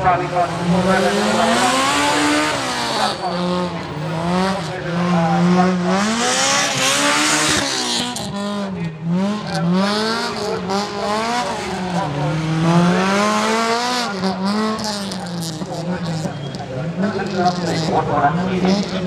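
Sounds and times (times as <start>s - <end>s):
car engine revving: 0.0s - 19.0s
tyre squeal: 15.3s - 18.0s.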